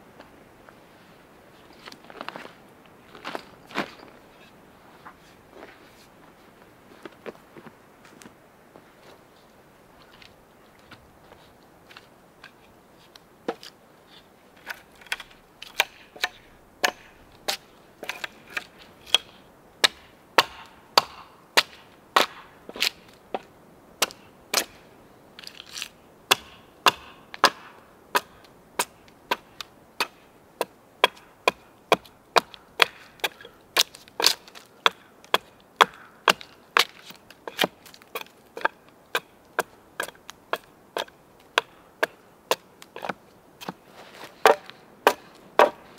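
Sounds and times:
axe chopping wood: 15.1 - 24.8, 26.3 - 43.8, 44.4 - 45.9.

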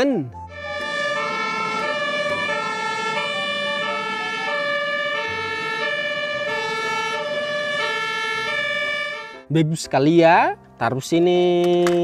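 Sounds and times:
two-tone emergency siren: 0.3 - 9.5.

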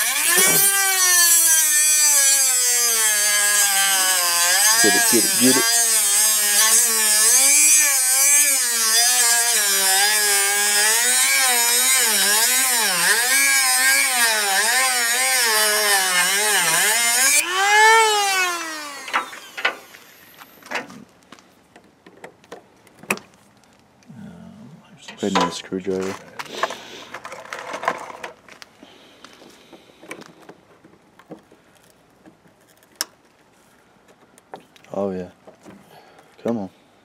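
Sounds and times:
cut-off wheel grinding metal: 0.0 - 20.4
rotary tool motor whine: 0.0 - 20.6.

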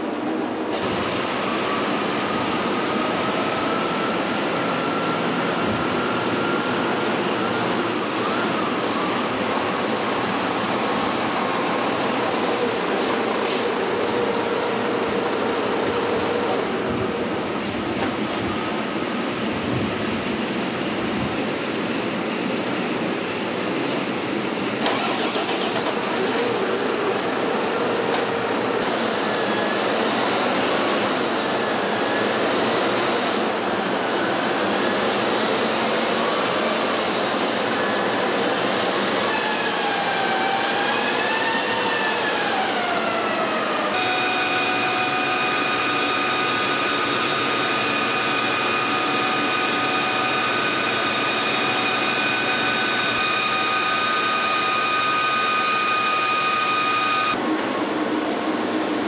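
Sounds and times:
dynamometer roller whine: 43.9 - 57.4.

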